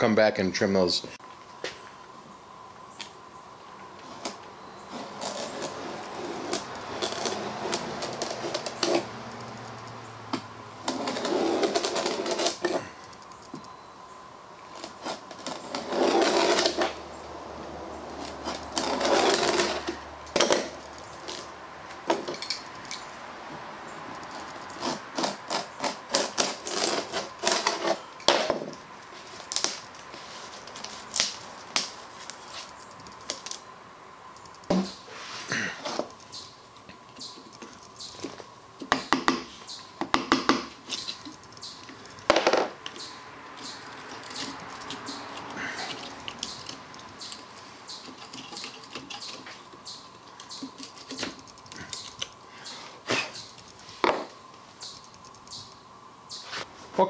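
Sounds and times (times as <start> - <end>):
blade scraping veneer: 4.1 - 9.2, 10.8 - 12.9, 14.7 - 17.0, 18.1 - 21.5, 24.3 - 28.6.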